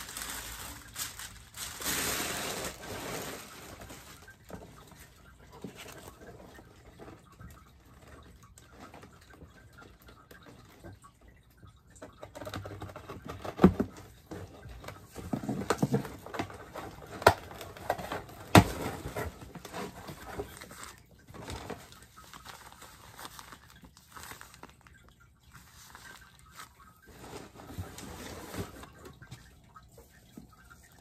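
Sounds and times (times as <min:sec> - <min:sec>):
packing material rustling: 0:00.0 - 0:05.0, 0:15.0 - 0:29.4.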